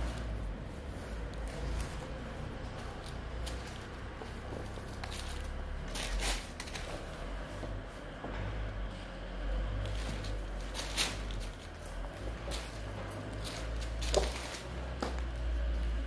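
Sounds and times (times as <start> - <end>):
wood veneer sheets swishing: 0.0 - 8.1, 9.8 - 16.0.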